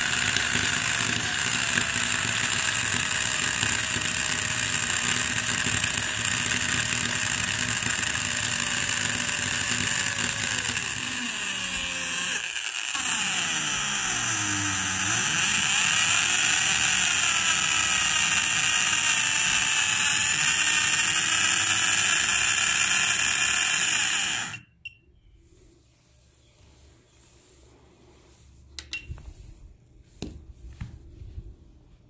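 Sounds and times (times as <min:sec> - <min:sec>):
small electric motor whining: 0:00.0 - 0:24.7.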